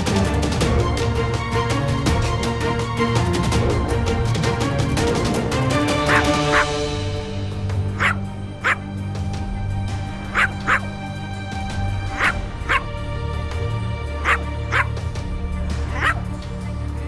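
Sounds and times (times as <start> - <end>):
background music low notes: 0.0 - 17.0
dog yipping: 6.1 - 6.7, 8.0 - 8.8, 10.3 - 10.9, 12.1 - 12.9, 14.2 - 14.9, 15.9 - 16.3.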